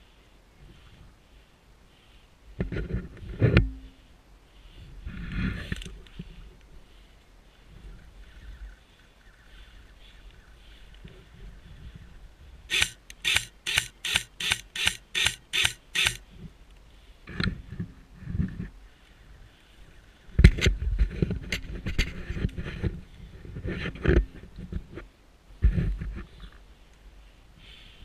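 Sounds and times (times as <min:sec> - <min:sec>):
airsoft rifle shots: 0:12.7 - 0:16.2.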